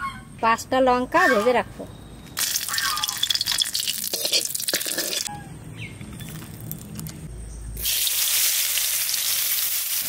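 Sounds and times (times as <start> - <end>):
oil sizzling in a wok: 7.8 - 10.0.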